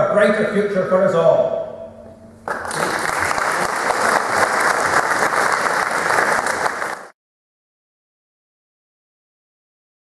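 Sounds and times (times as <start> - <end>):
audience applauding: 2.5 - 7.2.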